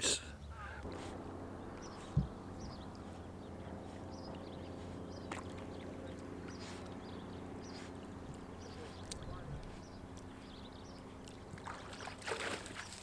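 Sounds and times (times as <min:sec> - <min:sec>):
distant truck engines drone: 0:00.0 - 0:13.0
low thump: 0:02.0 - 0:02.4.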